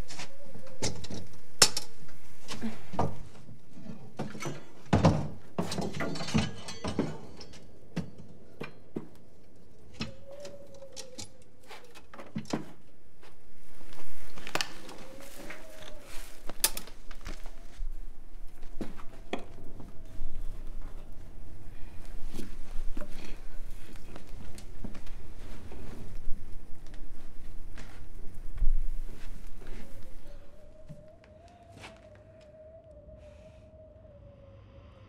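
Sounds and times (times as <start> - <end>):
objects knocking and clattering: 2.6 - 9.2
faint wavering tone: 29.3 - 35.0.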